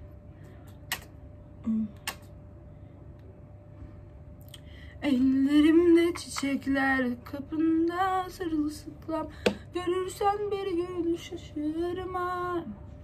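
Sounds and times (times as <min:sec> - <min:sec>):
woman singing: 0:05.0 - 0:12.8.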